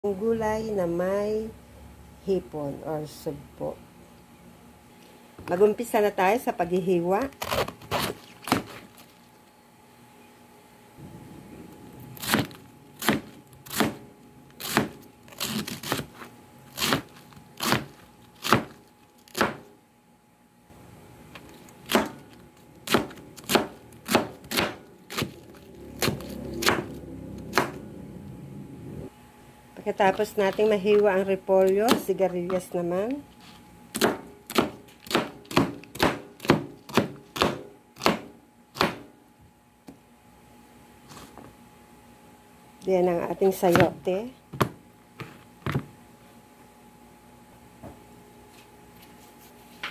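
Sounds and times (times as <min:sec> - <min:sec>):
knife slicing cabbage: 0:07.2 - 0:09.1, 0:12.2 - 0:14.0, 0:14.6 - 0:19.7, 0:21.8 - 0:27.8
knife chopping on cutting board: 0:12.2 - 0:14.0, 0:16.8 - 0:19.7, 0:21.8 - 0:22.2, 0:22.9 - 0:25.4, 0:34.0 - 0:39.1.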